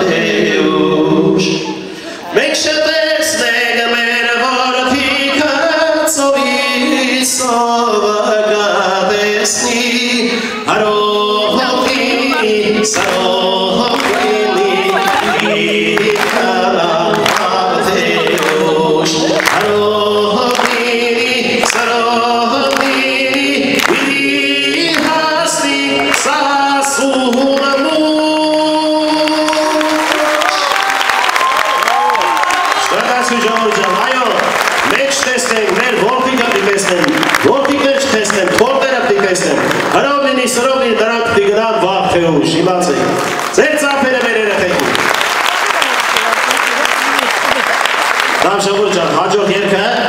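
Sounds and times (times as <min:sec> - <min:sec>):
man singing into a microphone: 0:00.0 - 0:30.6.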